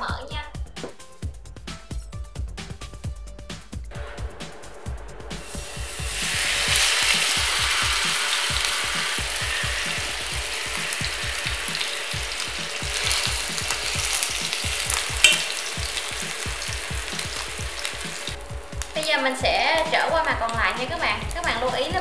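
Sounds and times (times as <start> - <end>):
fish sizzling in a pan: 5.4 - 22.0.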